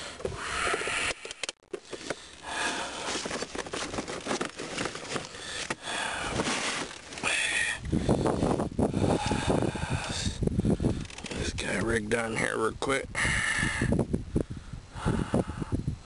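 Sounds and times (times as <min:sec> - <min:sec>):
plastic boxes clicking and clattering: 0:03.1 - 0:07.2.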